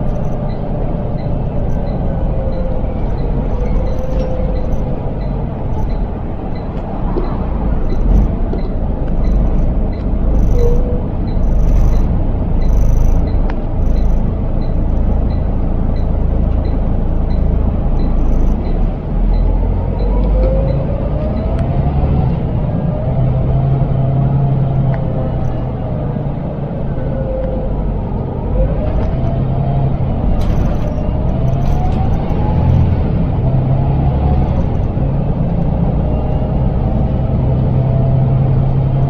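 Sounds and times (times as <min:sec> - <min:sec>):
rising whine: 0:00.0 - 0:18.7
bus engine low rumble: 0:00.0 - 0:39.0.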